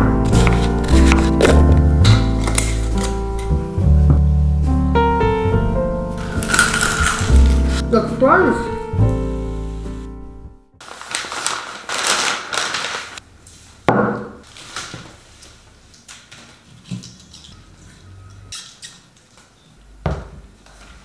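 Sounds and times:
stems and paper rustling: 0:00.3 - 0:01.8, 0:06.2 - 0:07.8, 0:10.8 - 0:13.2, 0:14.4 - 0:18.1
scissors snipping stems: 0:00.3 - 0:03.5, 0:06.2 - 0:07.8.

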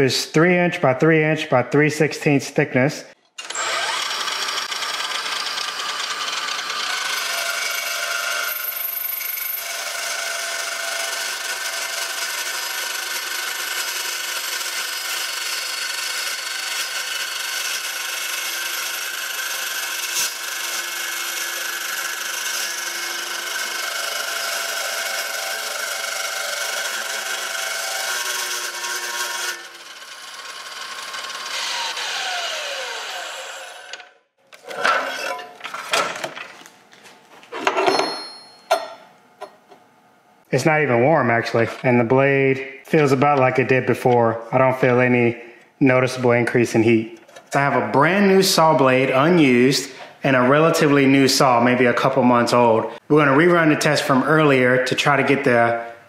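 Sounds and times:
saw winding down whine: 0:03.4 - 0:34.2
miter saw grinding through steel: 0:03.4 - 0:35.5.

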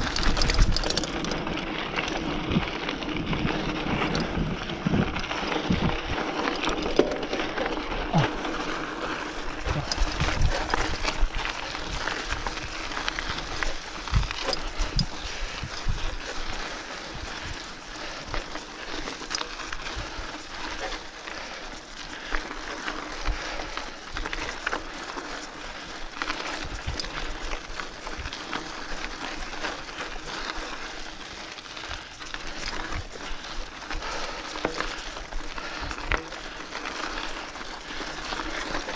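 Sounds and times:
bike knocks and rattles: 0:00.0 - 0:02.6
tyres on loose dirt: 0:00.0 - 0:38.9.

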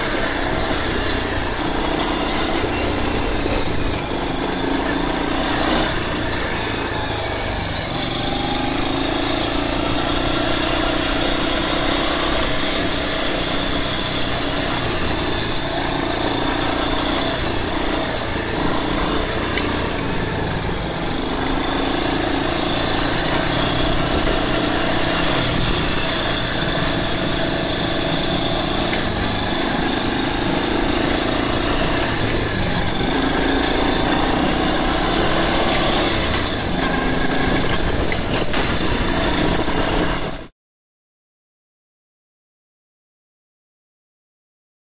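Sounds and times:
quad bike engine running: 0:00.0 - 0:40.5.

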